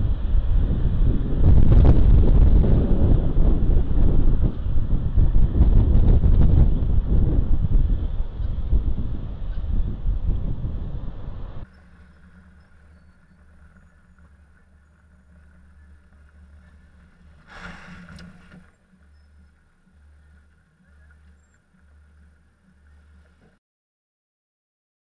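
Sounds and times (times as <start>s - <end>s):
road noise: 0.0s - 23.6s
car engine hum: 7.6s - 23.6s
passing car rush: 11.4s - 23.5s.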